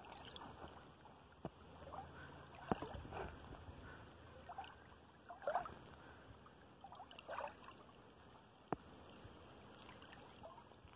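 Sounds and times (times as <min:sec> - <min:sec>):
water lapping over sand: 0:00.0 - 0:10.9
soft small splashes: 0:04.4 - 0:06.2, 0:06.8 - 0:10.9.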